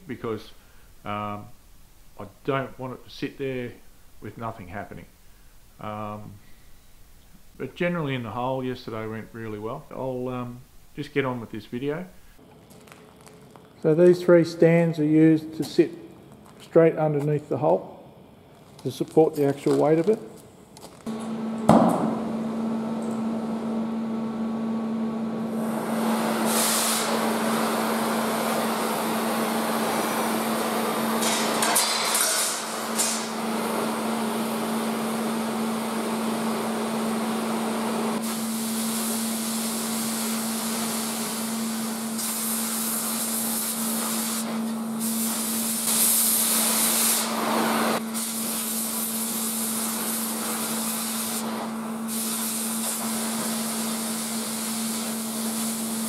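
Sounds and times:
steady welder hum: 5.0s - 56.0s
welding arc crackling hiss: 25.4s - 56.0s.

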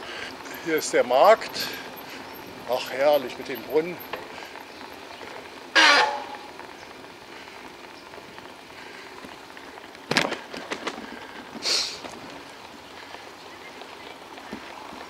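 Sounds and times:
bicycle rattling over cobblestones: 0.0s - 15.0s
brief hiss: 11.6s - 12.0s.

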